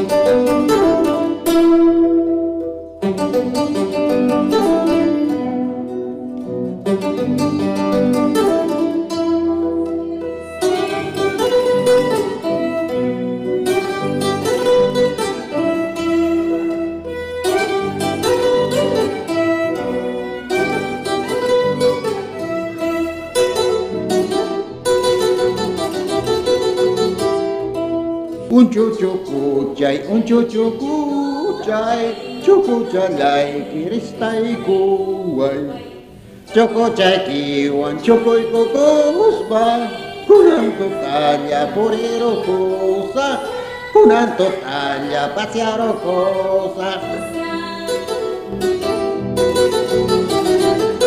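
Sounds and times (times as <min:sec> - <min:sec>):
plucked strings: 0:00.0 - 0:51.0
bowed violin: 0:06.8 - 0:26.2, 0:31.3 - 0:51.0.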